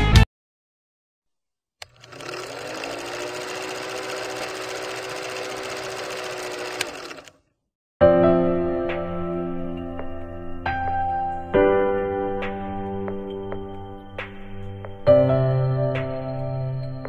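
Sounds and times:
music: 0.0 - 0.3, 8.0 - 17.0
film projector whirring: 1.8 - 7.4.

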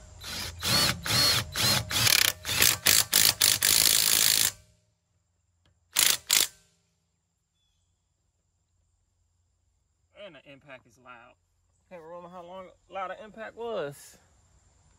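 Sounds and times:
impact wrench hammering: 6.0 - 6.6.

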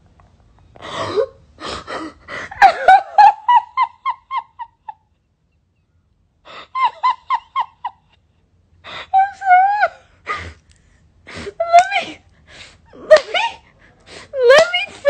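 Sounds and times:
woman giggling: 1.9 - 5.2, 6.5 - 8.2, 13.0 - 13.6.

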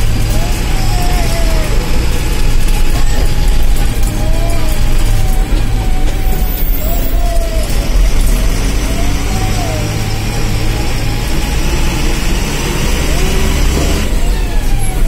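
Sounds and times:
vehicle engine and road rumble: 0.0 - 15.0.

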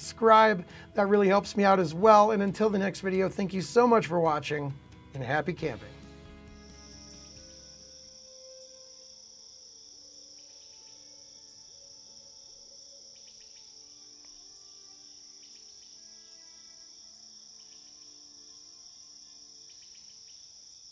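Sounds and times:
soft background music: 0.0 - 20.7
insects chirping: 6.4 - 20.9.

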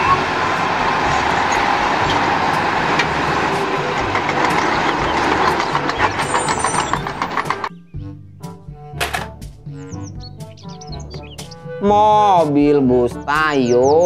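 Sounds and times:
knocks and rattles: 0.0 - 7.8
truck diesel engine running: 0.0 - 7.8
tyres rumbling on dirt: 0.0 - 14.0.

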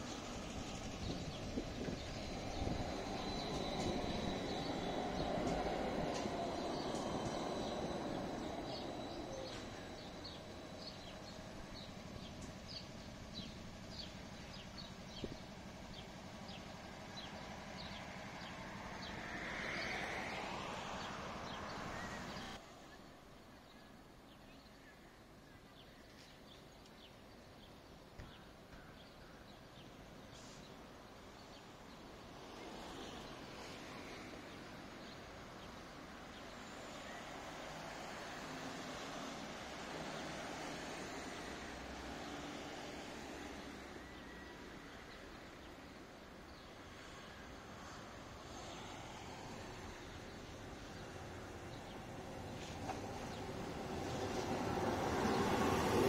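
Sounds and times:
tram rolling past: 0.0 - 22.6, 29.7 - 56.0
distant traffic: 0.0 - 23.6, 24.2 - 56.0
birds chirping: 0.2 - 19.2
vehicle passing: 17.7 - 22.6, 52.6 - 56.0.

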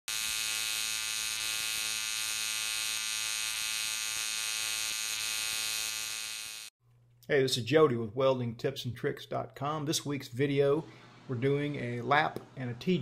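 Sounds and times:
welding arc buzzing: 0.1 - 6.7.

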